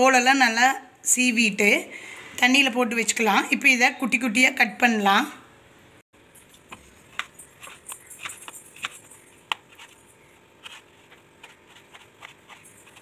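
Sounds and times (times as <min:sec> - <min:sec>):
knife slicing on cutting board: 0:10.6 - 0:13.0.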